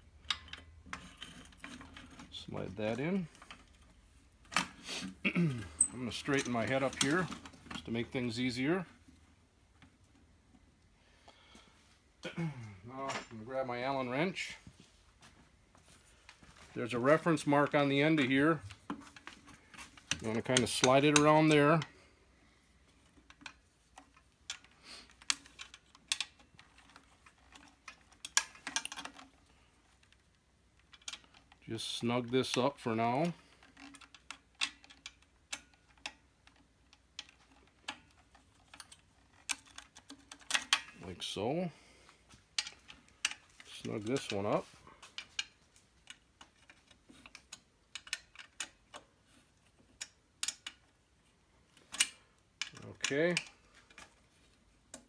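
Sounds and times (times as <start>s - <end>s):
light metal clicks and taps: 0.2s - 2.3s, 42.4s - 49.1s, 49.7s - 51.0s.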